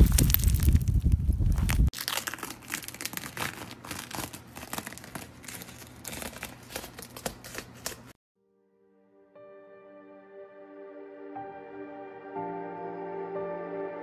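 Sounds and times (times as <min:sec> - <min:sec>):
wet coating crackling: 0:00.0 - 0:08.2.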